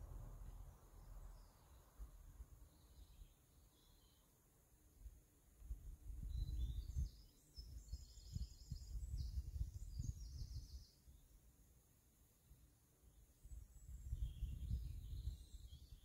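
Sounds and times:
wind rumble on microphone: 0.0s - 3.2s, 5.6s - 10.9s, 13.4s - 16.0s.

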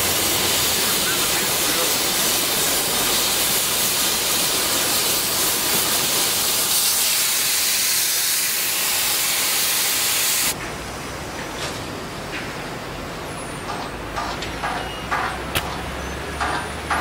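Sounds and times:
cutting torch hissing: 0.0s - 10.6s.

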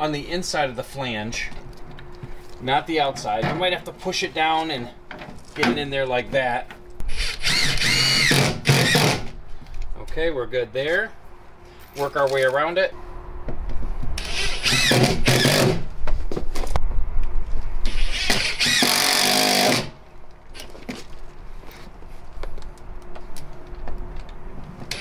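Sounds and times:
cordless drill motor whining: 7.1s - 9.2s, 14.2s - 15.6s, 17.9s - 19.9s.

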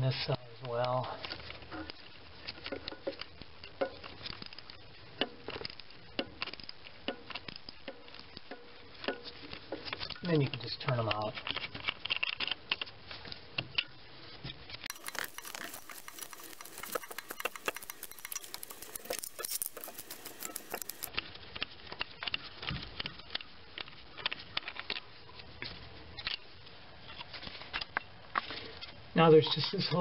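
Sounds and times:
metal screws clicking and scraping: 1.2s - 13.0s, 14.8s - 21.2s.

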